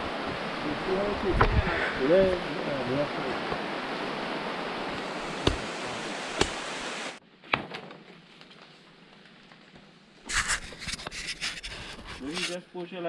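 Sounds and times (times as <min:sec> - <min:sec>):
steady rushing hiss: 0:00.0 - 0:07.2, 0:10.2 - 0:13.0
cutlass knocking on soil: 0:05.4 - 0:05.6, 0:06.4 - 0:06.6
scraping and rustling of digging: 0:08.1 - 0:12.6.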